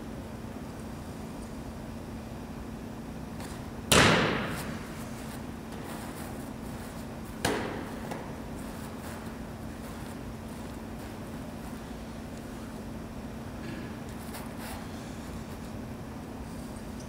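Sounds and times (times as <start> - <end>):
football slapping into hands: 3.9 - 4.8, 7.4 - 8.3.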